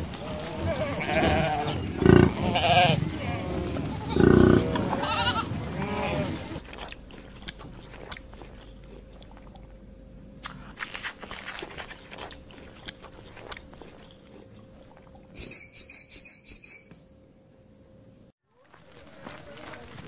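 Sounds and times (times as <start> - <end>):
puppy crunching food: 6.6 - 9.8, 10.4 - 15.3
high rapid chirping: 15.4 - 17.0.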